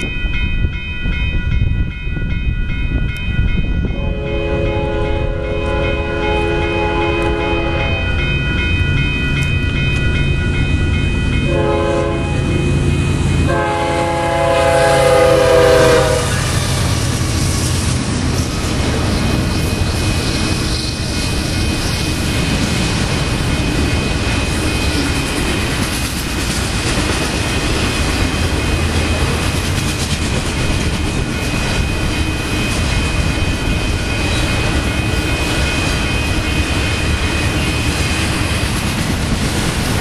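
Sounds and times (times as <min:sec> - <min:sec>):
crossing bell ringing: 0:00.0 - 0:40.0
locomotive air horn blasts: 0:04.0 - 0:08.0, 0:11.5 - 0:12.5, 0:13.5 - 0:16.6
locomotive engine and wheel rumble: 0:04.8 - 0:40.0.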